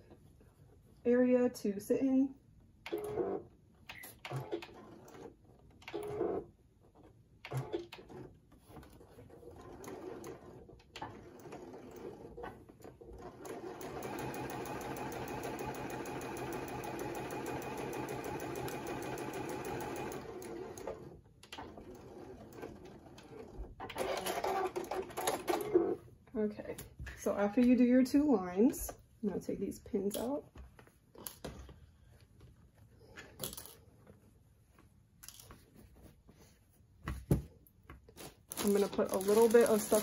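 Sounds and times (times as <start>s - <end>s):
sewing machine stitching: 2.9s - 6.5s, 9.1s - 26.0s
fabric rustling: 38.0s - 40.0s.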